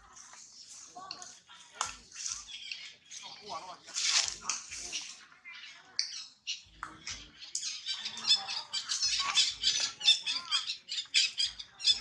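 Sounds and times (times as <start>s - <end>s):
animal squeaks and chirps: 6.1s - 12.0s.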